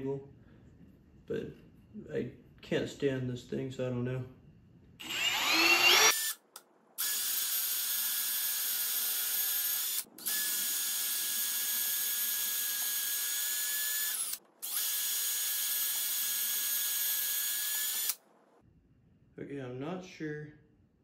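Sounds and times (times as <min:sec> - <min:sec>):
electric drill running: 0:05.0 - 0:06.4, 0:07.0 - 0:18.2.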